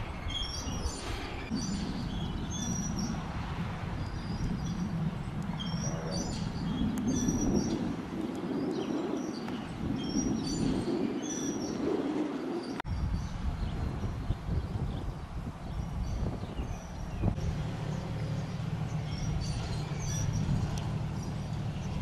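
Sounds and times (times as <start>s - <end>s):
small birds chirping: 0.0s - 3.3s, 4.0s - 22.0s
steady low rumble: 0.0s - 22.0s.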